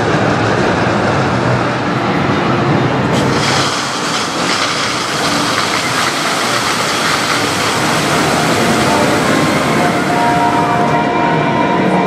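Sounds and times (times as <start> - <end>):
fountain water jets spraying: 3.1 - 11.0
spray raining onto water: 3.1 - 11.0.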